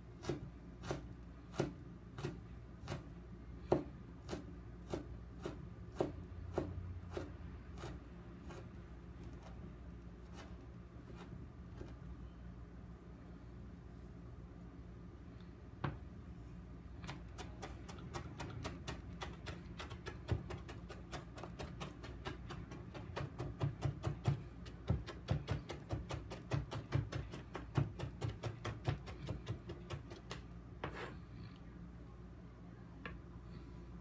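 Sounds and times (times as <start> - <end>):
knife chopping on plastic board: 0.2 - 8.6, 17.0 - 31.0.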